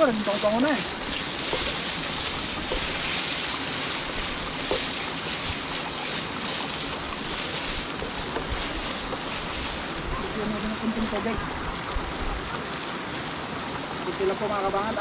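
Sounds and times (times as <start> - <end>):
faint crackles: 0.0 - 15.0
sauce sizzling in a pan: 0.0 - 15.0.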